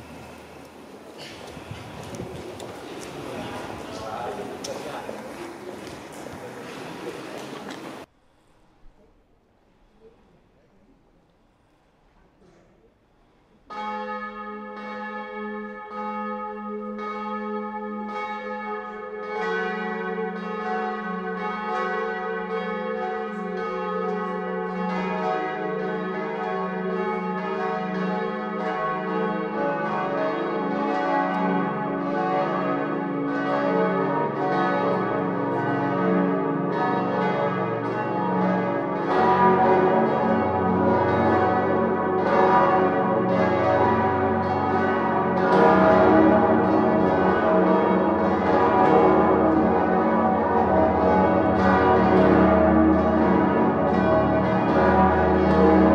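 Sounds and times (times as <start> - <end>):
church bells pealing: 0.0 - 8.1, 13.6 - 55.9.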